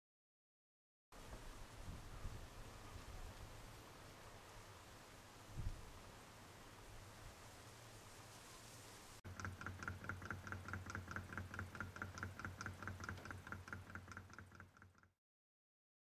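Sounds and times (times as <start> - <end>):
faint hiss: 1.2 - 9.2
model engine ticking: 9.3 - 15.2.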